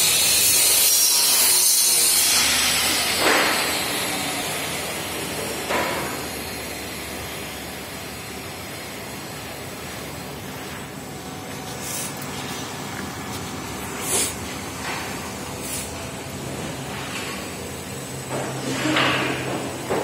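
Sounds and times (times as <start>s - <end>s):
rolling machine hissing: 2.2s - 17.6s.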